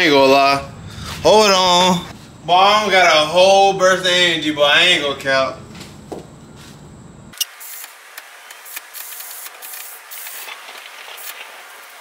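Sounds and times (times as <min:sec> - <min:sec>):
aerosol spray can hissing: 0:07.4 - 0:12.0.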